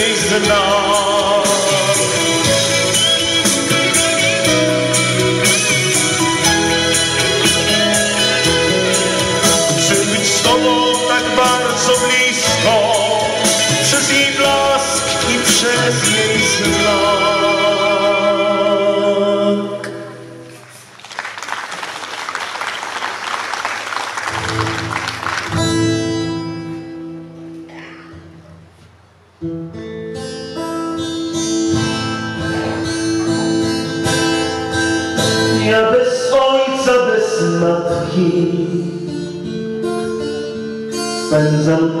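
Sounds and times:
man singing with vibrato: 0:00.0 - 0:20.6, 0:31.9 - 0:42.0
acoustic guitar music: 0:00.0 - 0:21.0, 0:24.2 - 0:42.0
acoustic guitar with keyboard: 0:00.0 - 0:21.0, 0:24.3 - 0:42.0
applause: 0:20.6 - 0:26.0.

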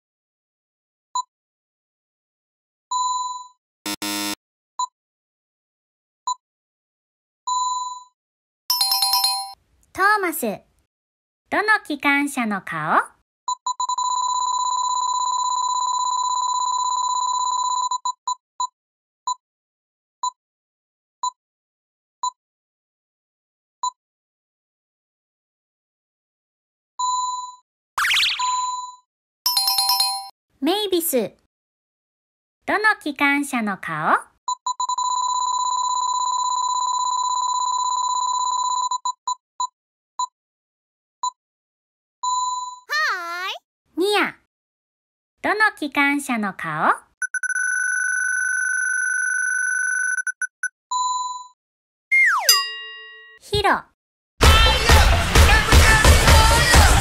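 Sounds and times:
electronic high beeps: 0:47.2 - 0:50.7.

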